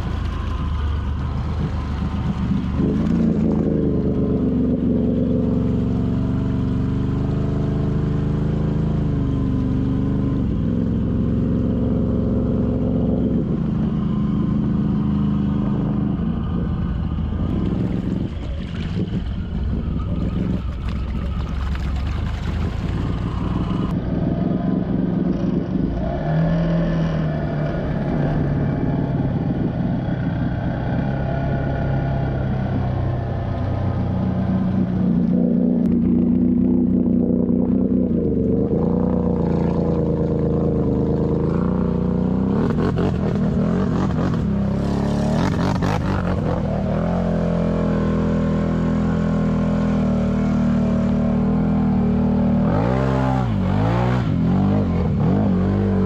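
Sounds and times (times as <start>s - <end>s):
atv engines revving: 0.0s - 56.0s.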